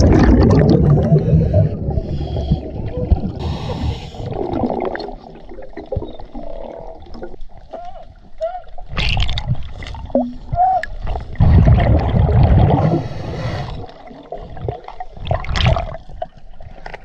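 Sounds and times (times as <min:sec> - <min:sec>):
bubbling with small clicks: 0:00.0 - 0:03.4, 0:04.2 - 0:13.0, 0:13.7 - 0:17.0
exhaled bubbles rushing: 0:00.0 - 0:07.6, 0:08.8 - 0:16.1
hissing regulator inhales: 0:03.4 - 0:04.3, 0:12.9 - 0:13.9.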